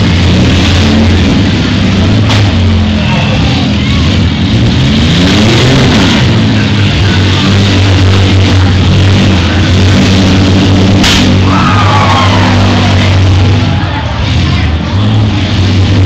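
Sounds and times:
car engines running: 0.0 - 16.0
sharp crack: 10.0 - 11.6.

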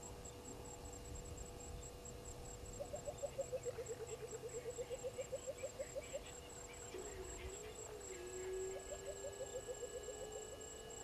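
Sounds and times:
faint high insect pulsing: 0.0 - 11.0
bird hooting rapidly: 8.2 - 10.5.

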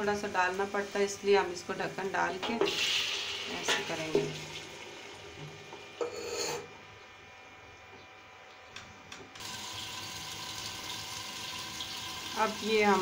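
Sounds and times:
food sizzling in wok: 0.0 - 5.4, 9.4 - 13.0.

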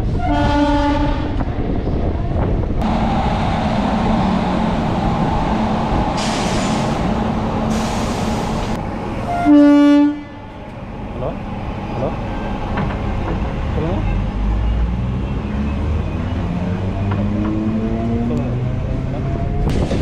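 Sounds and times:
electric train rumble: 0.0 - 14.5
train horn: 0.1 - 1.4, 9.3 - 10.6
hiss: 6.2 - 8.8.

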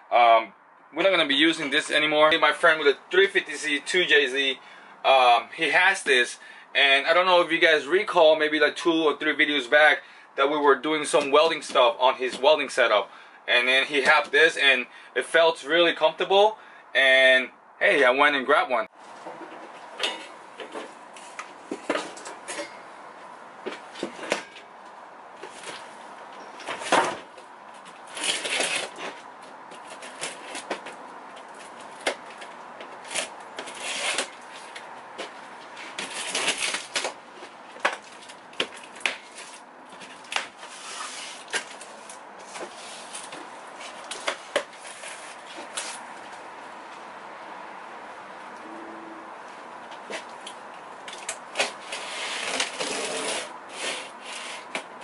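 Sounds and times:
boxed tabletop scraping and rustling: 25.4 - 26.0, 31.6 - 46.2, 51.6 - 54.9.

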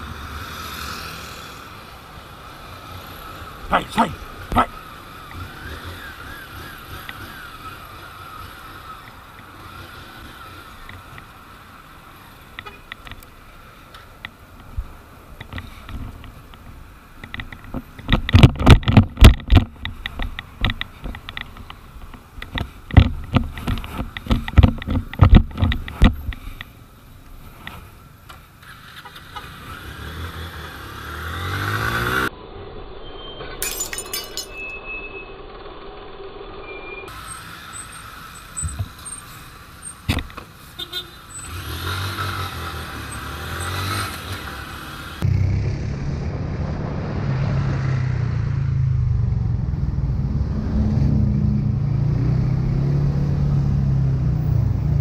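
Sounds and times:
traffic: 0.0 - 55.0
motorcycle running: 2.8 - 11.4, 15.4 - 26.8, 41.5 - 55.0.

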